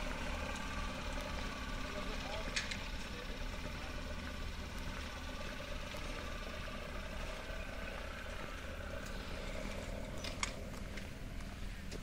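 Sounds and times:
machinery humming: 0.0s - 12.0s.

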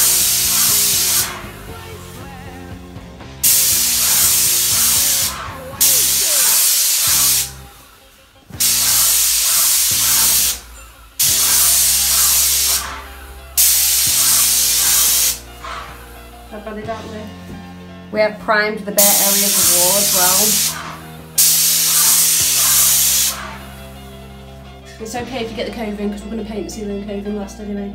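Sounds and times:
paint sprayer hissing: 0.0s - 2.3s, 3.4s - 16.4s, 19.0s - 24.1s.

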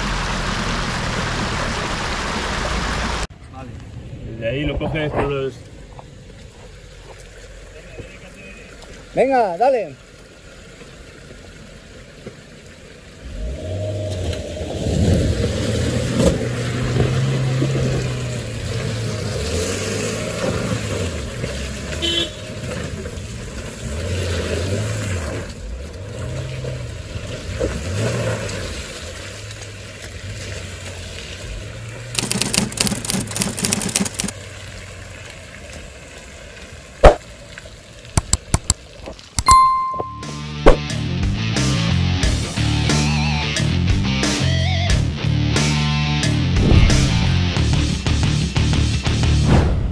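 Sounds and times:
engine revving under load: 13.2s - 22.0s
brief rapid rattle: 32.2s - 34.3s.

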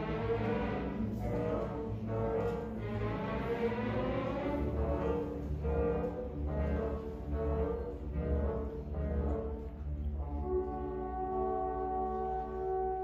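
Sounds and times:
orchestra playing: 0.0s - 13.0s.

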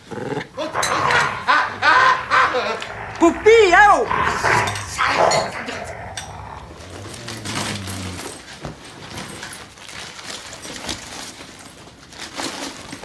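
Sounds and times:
low hum: 0.8s - 8.5s.

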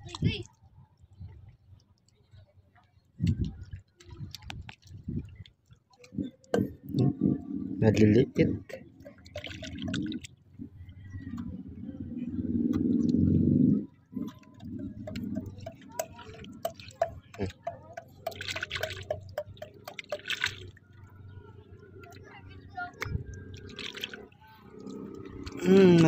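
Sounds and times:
low rumble: 9.8s - 15.6s
hand squelching in wet mud: 20.0s - 20.7s.

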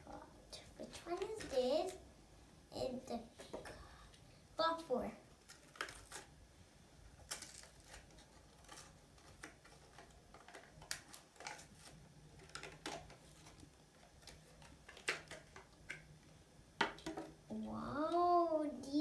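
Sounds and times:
plastic blister pack crackling: 5.4s - 6.4s, 7.2s - 16.1s.

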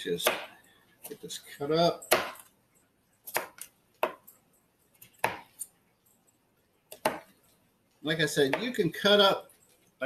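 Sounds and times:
knife chopping on cutting board: 0.2s - 1.2s, 2.1s - 2.5s, 3.3s - 4.3s, 5.1s - 5.6s, 6.9s - 7.3s.

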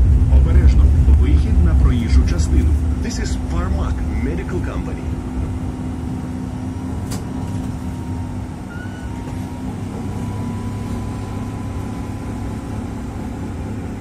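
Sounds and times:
tram running hum: 0.0s - 14.0s
faint high whine: 7.8s - 14.0s.

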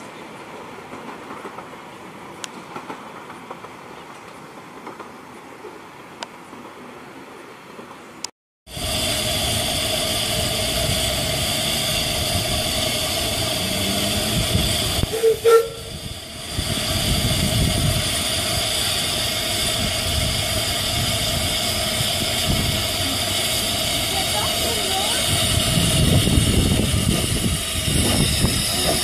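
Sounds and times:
steam hissing: 8.7s - 29.0s
steam whistle blasts: 8.9s - 16.1s.

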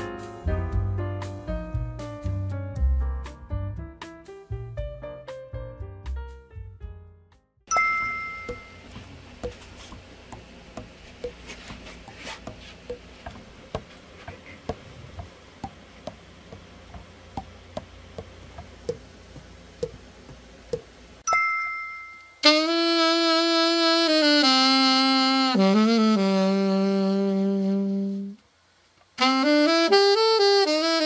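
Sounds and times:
two-tone chime: 7.7s - 8.9s, 21.2s - 22.4s
saxophone playing notes: 22.4s - 28.4s, 29.2s - 31.0s.

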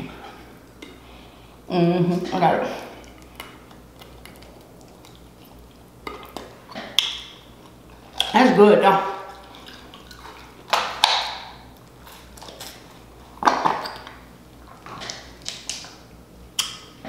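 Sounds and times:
wet chewing smacks: 3.0s - 8.3s.

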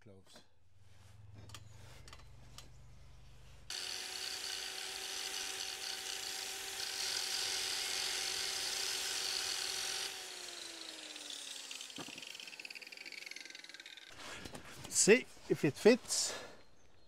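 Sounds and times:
electric grinder grinding metal: 3.7s - 14.1s
grinder motor spinning down: 3.7s - 14.1s.

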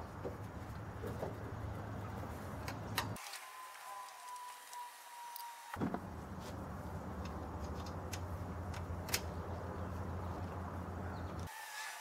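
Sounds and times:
steady low rumble: 5.9s - 11.4s.

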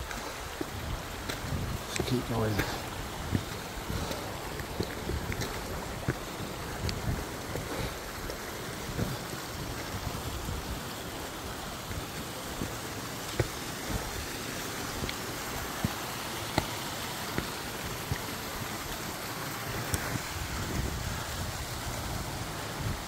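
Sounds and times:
footsteps on stone steps: 0.0s - 23.0s
stream running over rocks: 0.0s - 23.0s.

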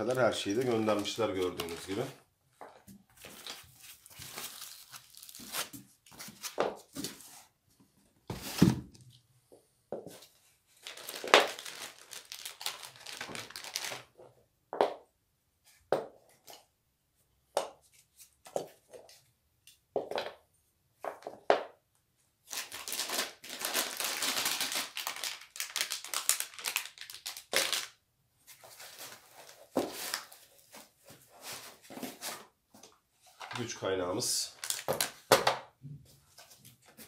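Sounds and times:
plastic bags crinkling: 0.1s - 2.2s, 3.2s - 5.7s, 10.7s - 14.2s, 22.5s - 28.0s, 34.5s - 35.3s.

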